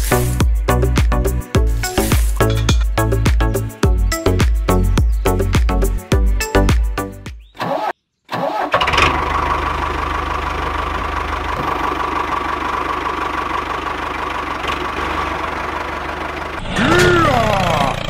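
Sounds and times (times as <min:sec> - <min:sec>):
constant engine whine: 0:08.5 - 0:18.0
engine chugging: 0:08.6 - 0:18.0.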